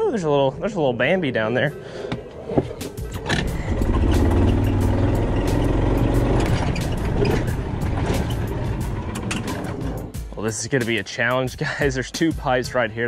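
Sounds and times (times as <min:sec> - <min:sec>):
golf cart motor humming: 0:03.0 - 0:10.2.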